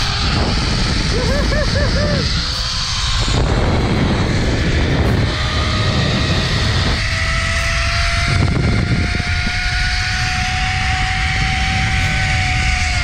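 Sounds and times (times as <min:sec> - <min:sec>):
wind buffeting microphone: 0:00.0 - 0:13.0
zipline pulleys whining on cable: 0:00.0 - 0:13.0.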